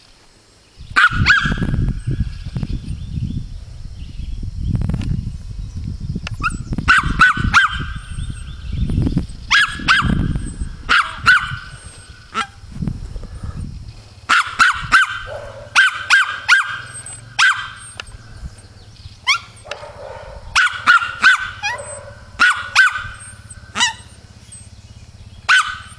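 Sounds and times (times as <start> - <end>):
small dog yapping: 1.0 - 2.0, 6.4 - 8.5, 9.5 - 12.6, 14.3 - 18.2, 19.2 - 24.7, 25.4 - 25.9
low rumble: 7.9 - 14.3, 16.8 - 25.5.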